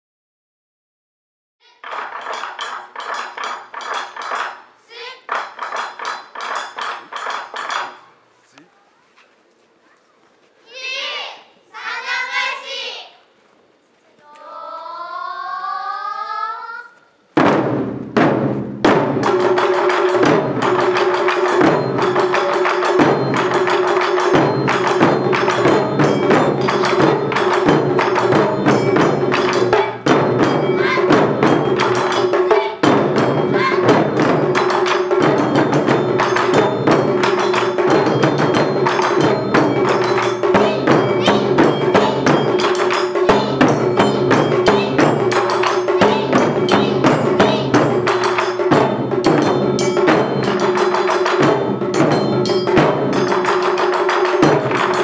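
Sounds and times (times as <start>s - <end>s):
taiko drums beating fast: 1.8s - 4.6s, 5.3s - 8.1s, 17.4s - 55.0s.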